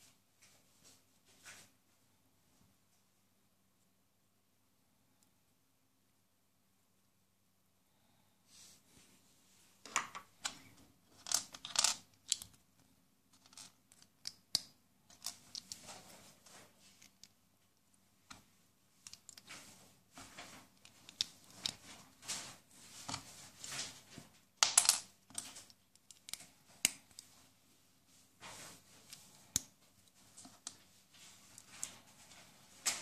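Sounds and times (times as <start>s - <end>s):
plastic bricks clicking and snapping: 9.9s - 12.6s.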